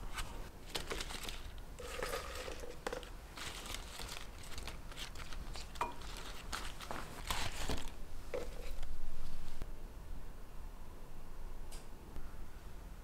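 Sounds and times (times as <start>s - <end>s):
lettuce leaves rustling: 0.1s - 8.8s.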